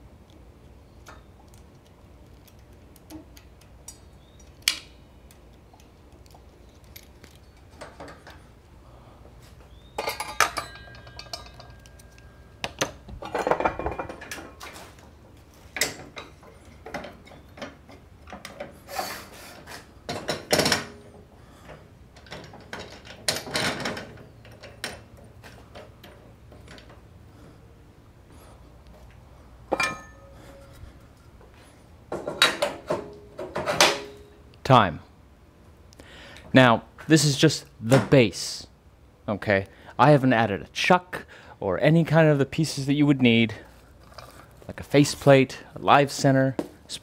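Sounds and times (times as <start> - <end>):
metal parts clanking and scraping: 9.8 - 15.0, 15.6 - 27.0, 29.7 - 31.2, 32.1 - 34.4
short metallic ringing: 29.8 - 30.7.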